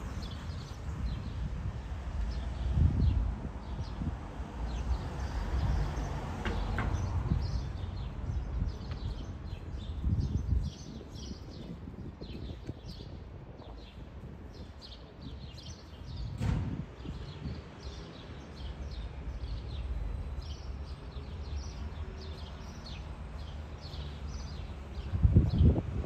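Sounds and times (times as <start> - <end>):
small birds chirping: 4.7 - 16.4
low thump: 16.3 - 17.0.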